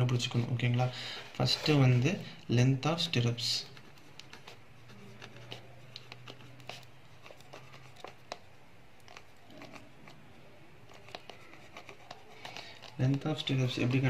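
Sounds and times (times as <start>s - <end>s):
pen scratching on paper: 3.6s - 8.4s, 9.0s - 14.0s.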